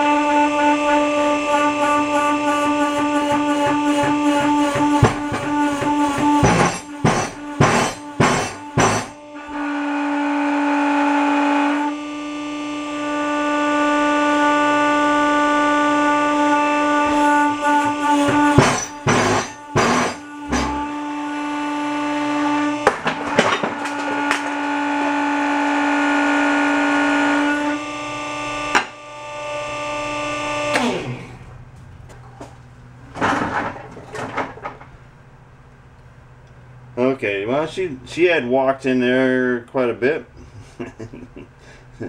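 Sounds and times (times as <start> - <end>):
electric motor whining: 0.0 - 31.6
steel parts clanking: 5.0 - 9.2, 18.1 - 21.0.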